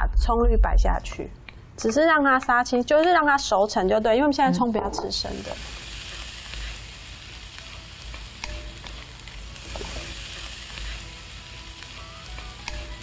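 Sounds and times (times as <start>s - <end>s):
vegetables sizzling in a wok: 5.1s - 13.0s
spatula clicking on pan: 12.6s - 12.9s.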